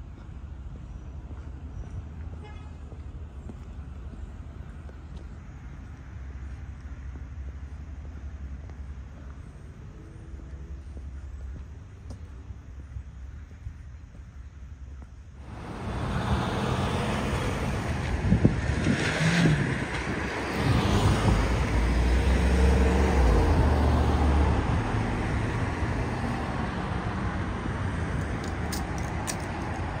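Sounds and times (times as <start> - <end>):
low engine hum: 0.0 - 30.0
cars and trucks driving past: 15.4 - 30.0.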